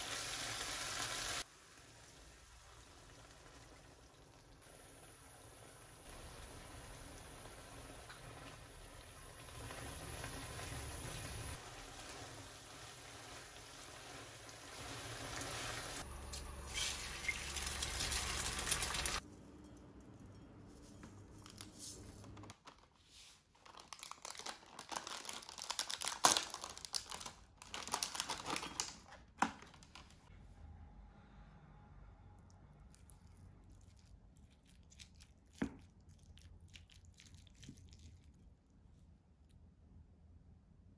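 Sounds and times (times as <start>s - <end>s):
food simmering in frying pan: 0.0s - 19.2s.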